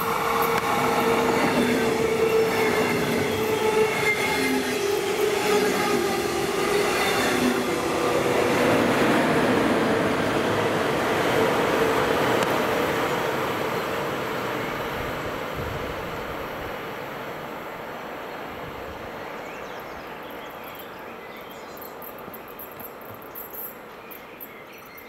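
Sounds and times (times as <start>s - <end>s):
electric train passing: 0.0s - 19.3s.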